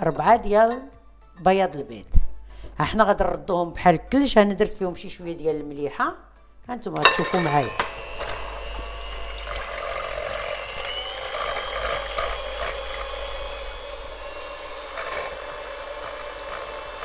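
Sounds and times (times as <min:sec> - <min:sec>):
beaters clattering against glass: 0:07.0 - 0:07.9
electric mixer motor whine: 0:07.0 - 0:17.0.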